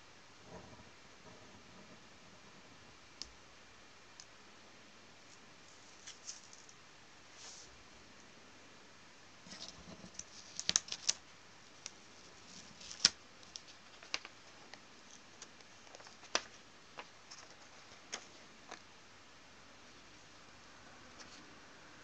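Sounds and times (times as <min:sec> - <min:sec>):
paper crackling and rustling: 0:09.5 - 0:18.8.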